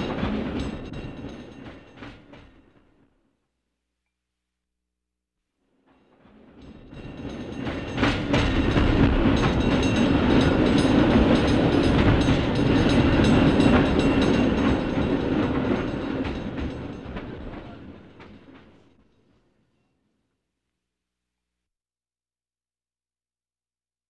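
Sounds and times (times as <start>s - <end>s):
cable car rumbling and rattling: 0.0s - 2.8s, 6.4s - 19.0s.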